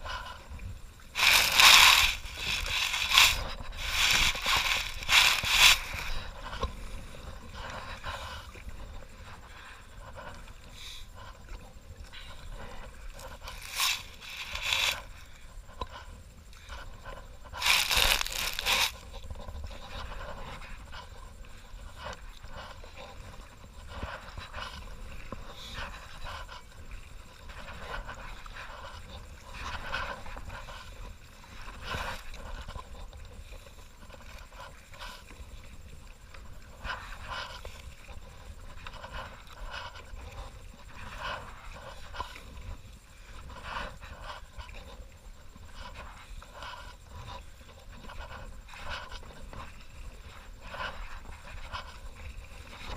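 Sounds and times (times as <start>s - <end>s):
scrape against camera: 1.1s - 52.9s
person breathing hard: 1.2s - 6.2s.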